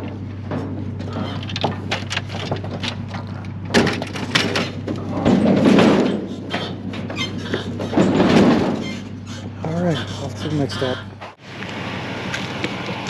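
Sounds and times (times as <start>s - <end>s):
metal knocks and clatters: 0.0s - 9.6s
steady low hum: 0.0s - 13.0s.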